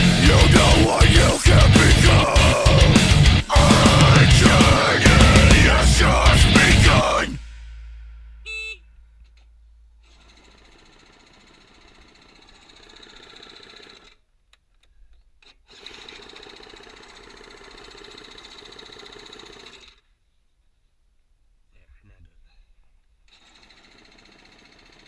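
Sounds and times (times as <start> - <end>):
electric starter cranking engine: 10.1 - 14.2, 15.7 - 20.0, 23.3 - 25.0.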